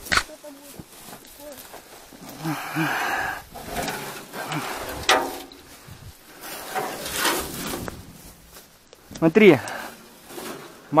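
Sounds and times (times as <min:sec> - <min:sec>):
rustling through grass and brush: 0:00.0 - 0:11.0
sheet metal guard handled: 0:03.6 - 0:05.8.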